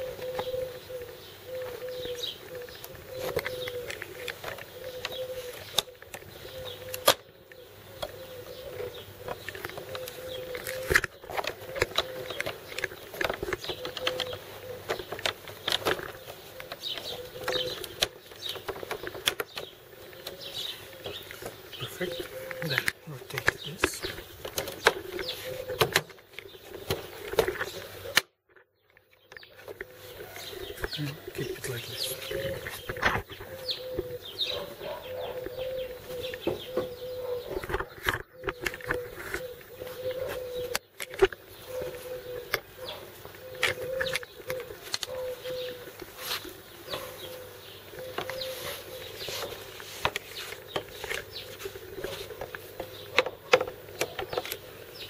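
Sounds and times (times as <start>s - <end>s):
birds chirping: 0.0s - 55.0s.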